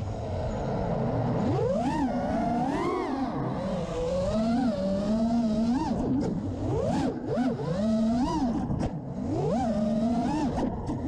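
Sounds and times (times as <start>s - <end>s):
drone motors whining: 0.0s - 11.0s.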